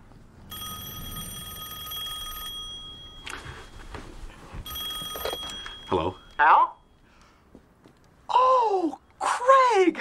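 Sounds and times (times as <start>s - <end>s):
landline telephone ringing: 0.5s - 3.9s, 4.6s - 7.0s.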